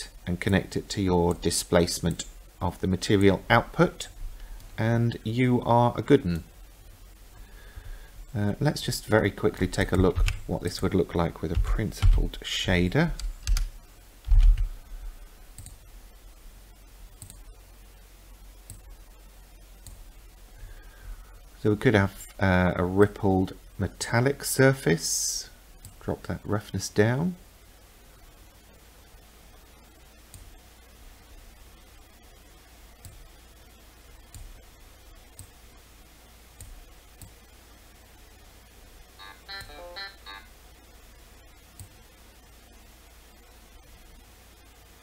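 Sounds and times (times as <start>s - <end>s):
low room hum: 0.0s - 45.0s
computer mouse clicks: 15.5s - 15.8s, 17.2s - 17.4s, 18.6s - 18.9s, 19.8s - 20.1s, 33.0s - 33.3s, 34.3s - 34.6s, 35.3s - 35.6s, 36.6s - 37.4s, 41.7s - 42.0s.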